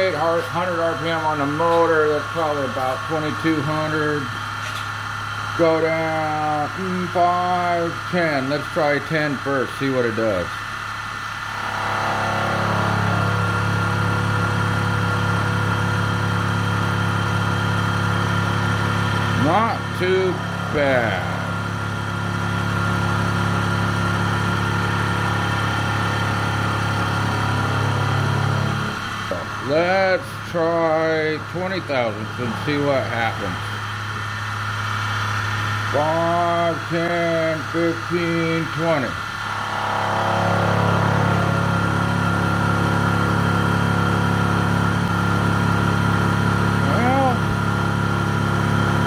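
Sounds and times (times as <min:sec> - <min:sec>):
milling machine hum and whine: 0:00.0 - 0:49.0
motor humming: 0:11.1 - 0:24.6.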